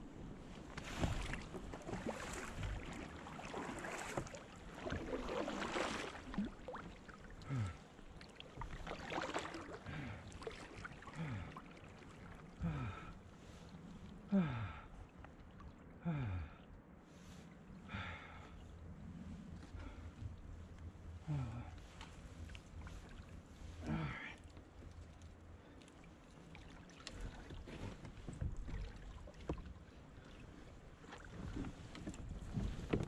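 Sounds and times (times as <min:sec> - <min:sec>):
paddle splashing water: 0:00.4 - 0:16.0, 0:21.8 - 0:33.0.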